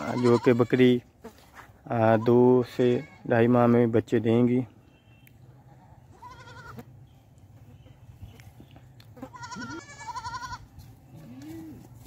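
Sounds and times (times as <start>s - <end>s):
goat kids bleating: 0.0s - 1.0s, 2.0s - 3.6s, 5.6s - 6.9s, 9.2s - 12.0s.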